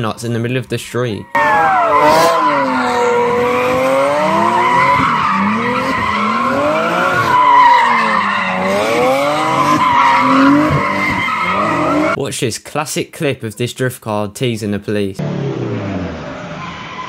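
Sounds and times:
car engines revving: 1.3 - 12.2, 15.2 - 17.0
tyres squealing: 1.3 - 12.2.

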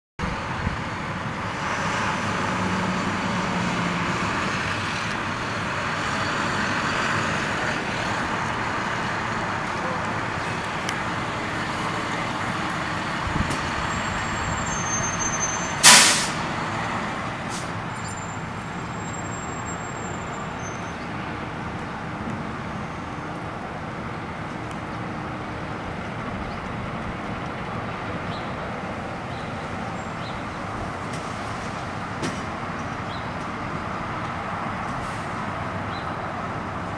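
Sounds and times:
street noise: 0.2 - 36.9
loud short burst: 15.8 - 16.4.

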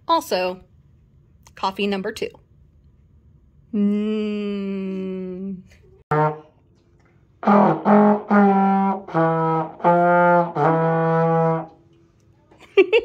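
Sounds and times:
trombone playing: 6.1 - 6.8, 7.4 - 11.8.

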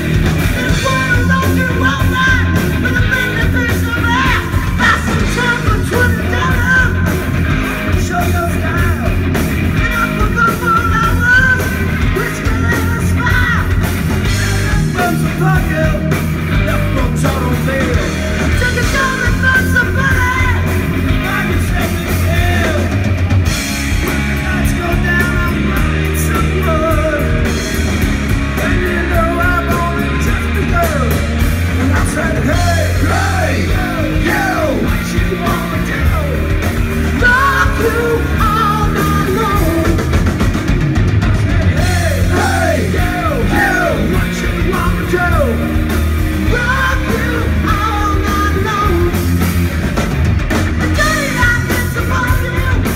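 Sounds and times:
man singing: 0.0 - 7.2, 7.8 - 23.0, 24.3 - 27.8, 28.4 - 40.3, 41.6 - 49.4, 50.8 - 52.9
bass guitar: 0.0 - 52.9
drum kit: 0.0 - 52.9
electric guitar: 0.0 - 52.9.

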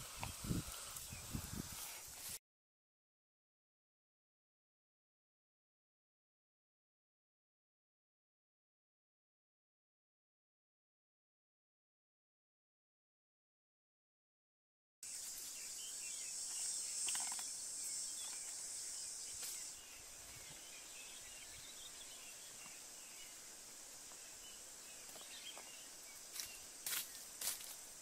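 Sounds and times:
insect drone: 0.0 - 2.2, 15.0 - 28.0
bird chirps: 15.4 - 23.4, 24.2 - 27.2.

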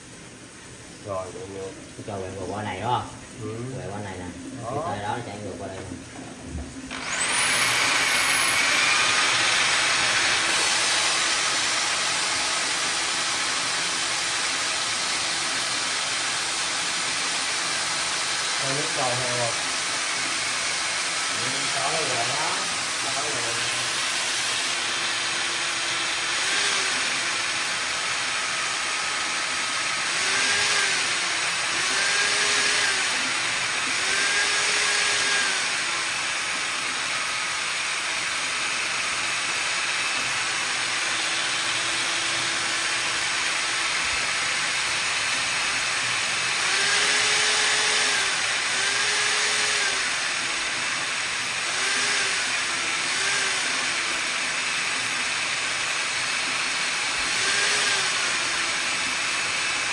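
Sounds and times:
drain cleaning machine hissing: 6.5 - 41.3, 42.6 - 59.9.

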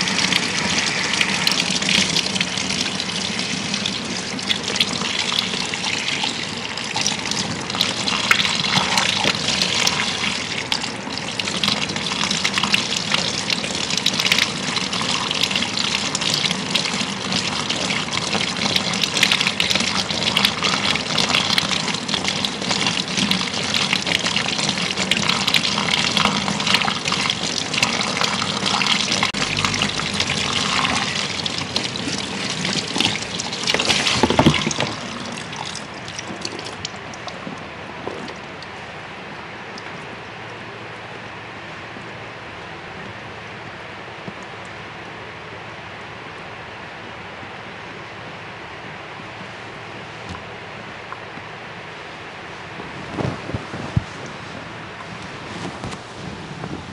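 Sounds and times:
shower head spraying water: 0.0 - 4.0
water splashing into basin: 0.0 - 38.8.

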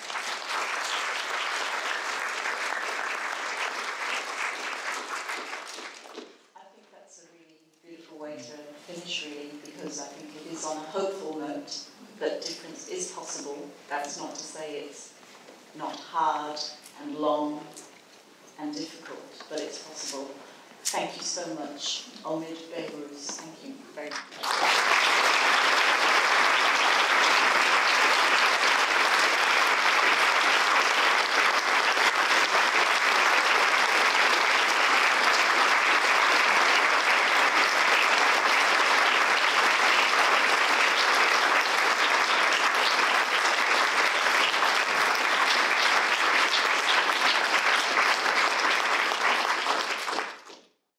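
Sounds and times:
audience applauding: 0.0 - 6.4, 24.1 - 50.6.

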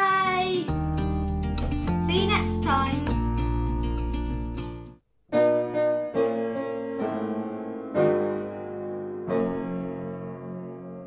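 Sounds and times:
slow piano chords: 5.3 - 11.0.

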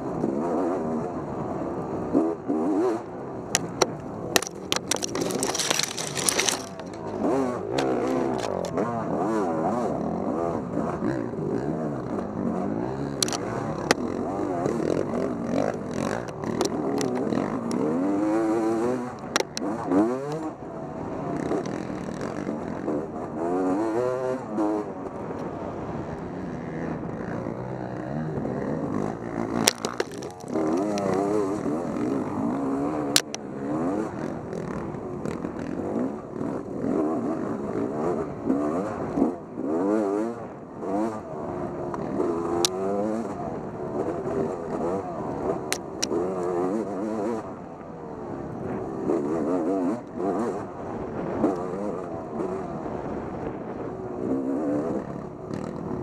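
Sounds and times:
motorcycle engine revving: 0.0 - 56.0
sharp clicks or knocks: 3.6 - 8.8.

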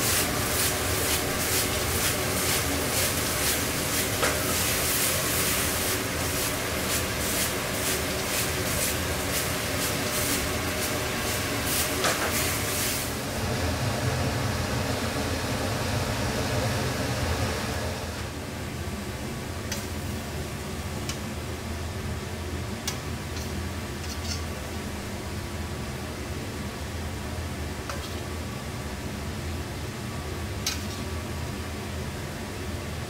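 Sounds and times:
food sizzling in wok: 0.0 - 13.9
gas burner roaring: 0.0 - 33.0.

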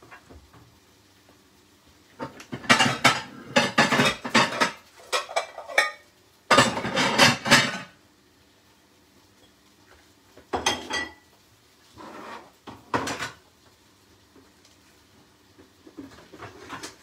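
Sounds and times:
metal utensils scraping a dish: 2.6 - 6.0, 6.6 - 7.9.

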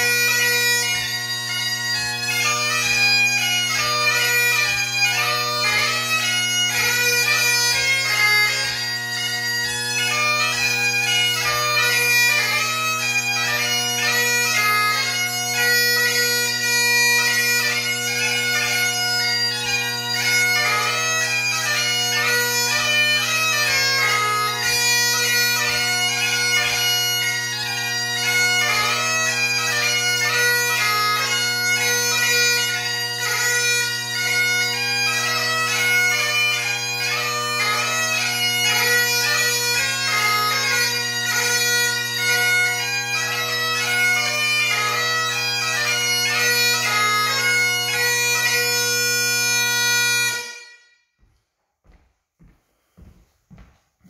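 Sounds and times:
bagpipe playing: 0.0 - 51.1.

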